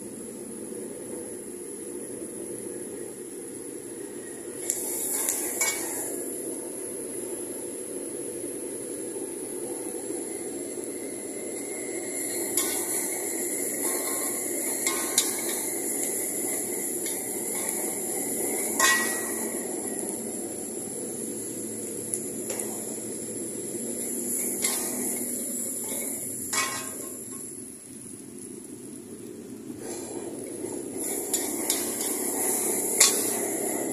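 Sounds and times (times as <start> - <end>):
frying hiss: 0.0 - 33.9
metal spatula scraping a wok: 4.9 - 6.1, 12.3 - 19.7, 24.4 - 27.4, 31.0 - 33.9.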